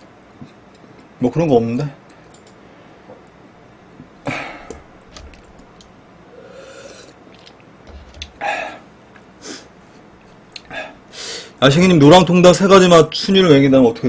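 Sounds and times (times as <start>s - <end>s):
man drinking from plastic cup: 6.4s - 8.5s.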